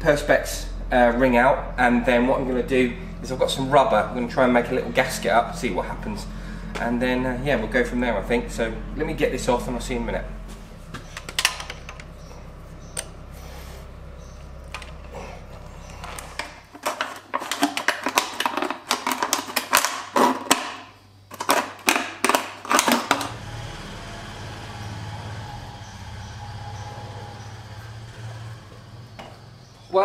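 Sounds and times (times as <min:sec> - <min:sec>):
low hum: 0:00.0 - 0:17.1, 0:23.3 - 0:29.9.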